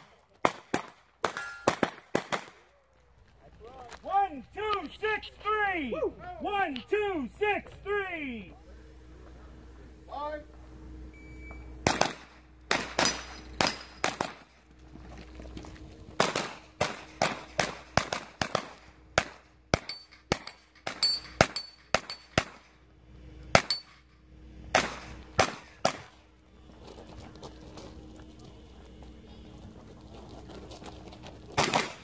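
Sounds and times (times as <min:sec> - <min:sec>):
steel targets ringing: 0:01.3 - 0:02.0, 0:11.2 - 0:14.5, 0:19.8 - 0:22.6, 0:23.6 - 0:24.1
rapid gunshots: 0:11.8 - 0:14.5, 0:16.2 - 0:22.7, 0:24.7 - 0:26.2, 0:31.6 - 0:32.0.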